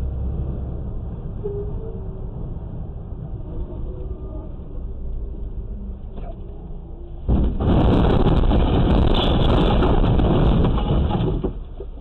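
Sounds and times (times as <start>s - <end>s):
road rumble: 0.0s - 12.0s.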